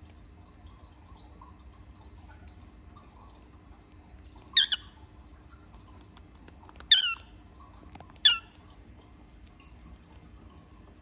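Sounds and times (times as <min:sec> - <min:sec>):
baby cockatiel squawking: 0:04.6 - 0:04.8, 0:06.9 - 0:07.2, 0:08.2 - 0:08.5
faint pecking clicks: 0:05.6 - 0:08.4.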